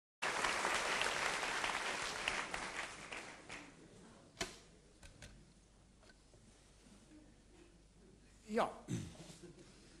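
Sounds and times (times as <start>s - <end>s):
audience applauding: 0.2s - 3.7s.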